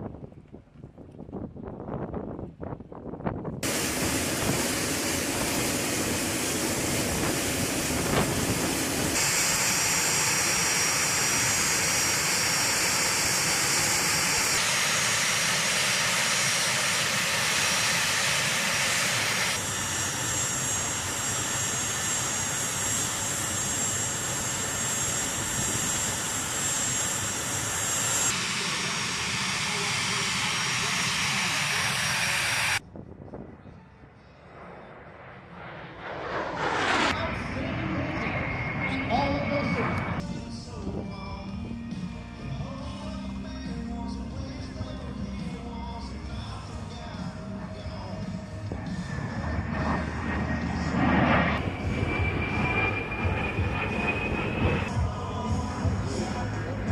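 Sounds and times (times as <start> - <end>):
jet engines with high whine: 0.0 - 43.7, 44.3 - 56.9.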